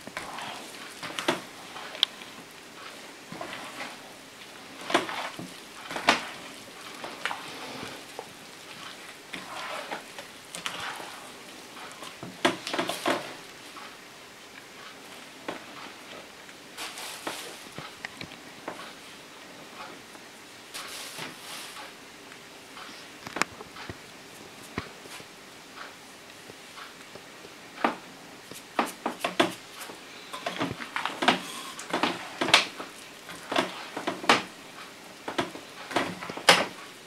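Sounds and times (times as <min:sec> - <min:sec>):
hands kneading wet dough: 0:00.0 - 0:19.0.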